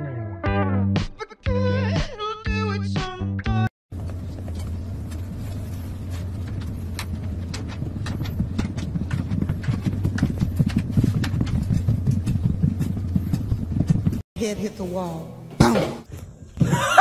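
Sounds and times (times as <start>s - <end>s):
wooden exercise wheel rumbling: 4.0s - 14.2s
kitten running thumps and clicks: 6.2s - 14.2s.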